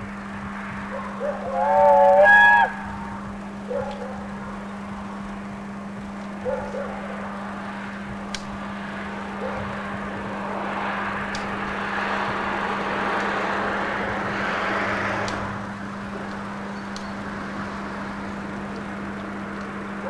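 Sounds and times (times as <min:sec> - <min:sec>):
distant steam train rushing: 0:00.0 - 0:04.7, 0:05.8 - 0:20.0
goose honking: 0:01.0 - 0:03.8.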